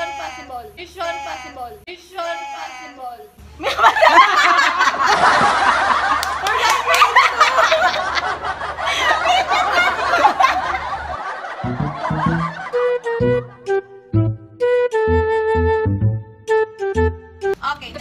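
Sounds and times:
people laughing and shrieking: 0:03.7 - 0:12.8
flute-like music: 0:11.7 - 0:17.6.

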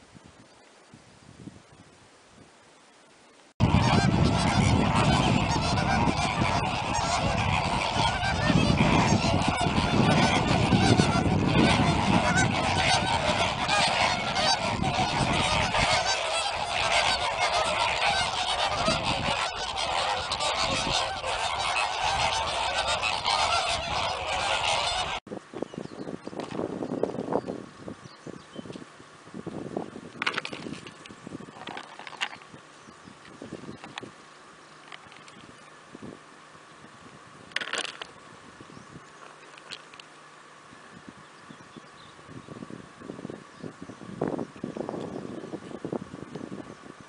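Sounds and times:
flamingos honking: 0:03.6 - 0:25.3, 0:30.1 - 0:36.0, 0:37.5 - 0:40.4.

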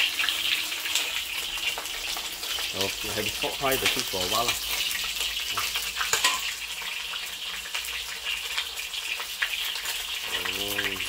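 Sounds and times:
fish sizzling in a wok: 0:00.0 - 0:11.0.

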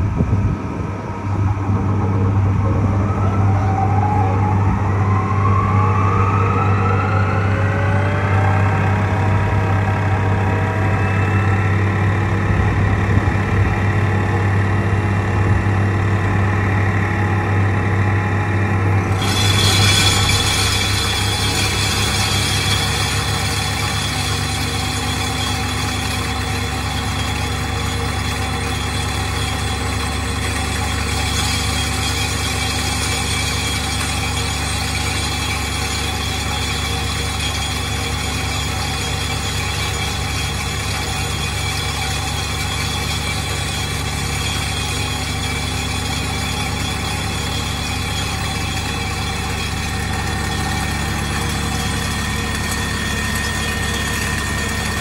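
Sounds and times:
vibratory hammer droning: 0:00.0 - 0:55.0.

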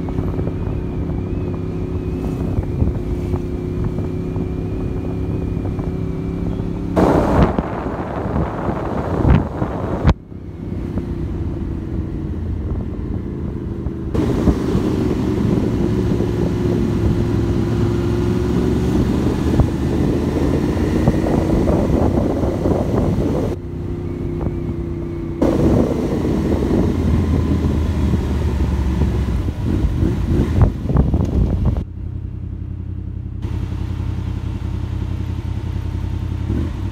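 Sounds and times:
motorcycle engine revving: 0:00.0 - 0:36.9
motorcycle idling: 0:30.7 - 0:36.9.

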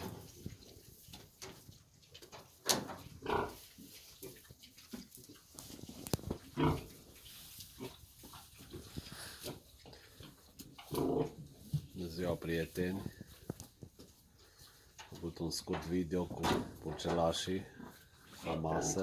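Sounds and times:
piglets grunting: 0:03.2 - 0:03.6, 0:06.5 - 0:06.9, 0:10.8 - 0:11.4.

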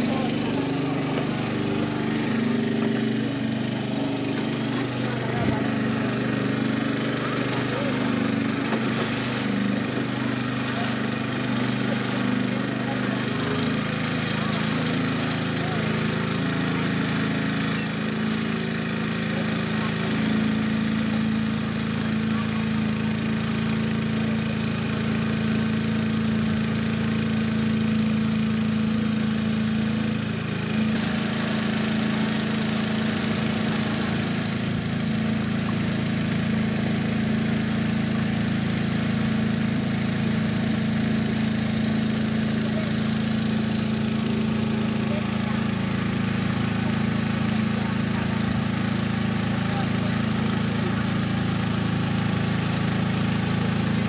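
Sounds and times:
boat engine droning: 0:00.0 - 0:54.0.

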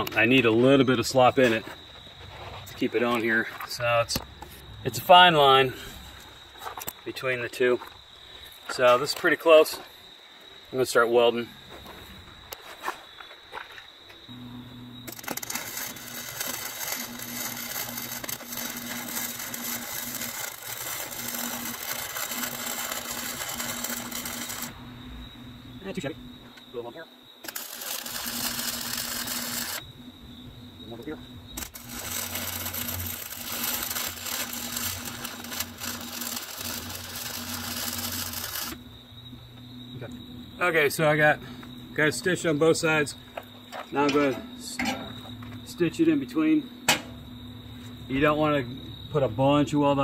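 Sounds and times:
welding arc crackling: 0:14.3 - 0:26.2, 0:27.4 - 0:30.1, 0:30.8 - 0:39.0
welder hum: 0:14.3 - 0:26.6, 0:27.4 - 0:49.6.

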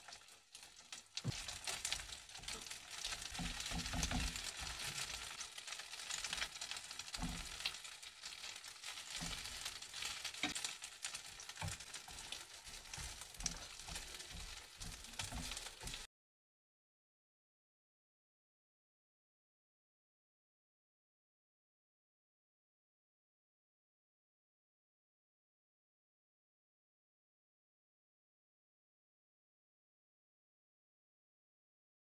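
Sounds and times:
fish cakes sizzling in oil: 0:00.0 - 0:16.1.

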